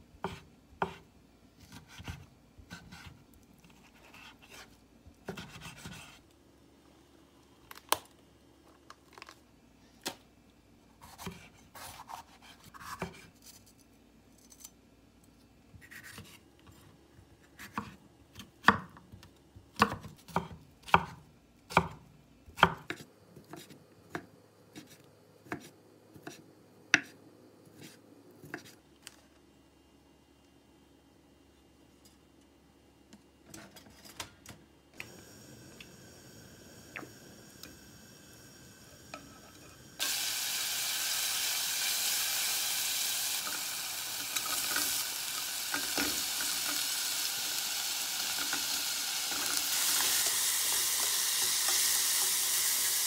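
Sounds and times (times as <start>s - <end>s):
knife chopping on wooden board: 0.2s - 1.0s.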